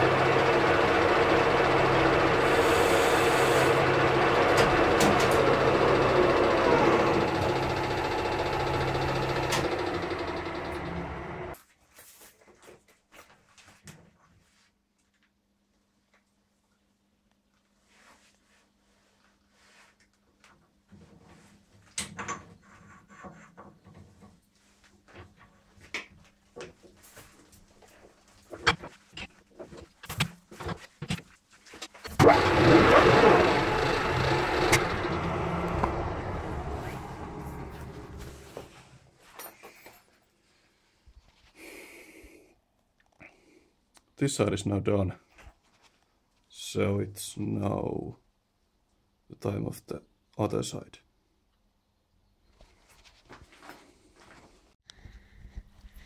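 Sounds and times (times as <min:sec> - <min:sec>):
metal lathe motor hum: 0:00.0 - 0:11.6, 0:32.1 - 0:38.8.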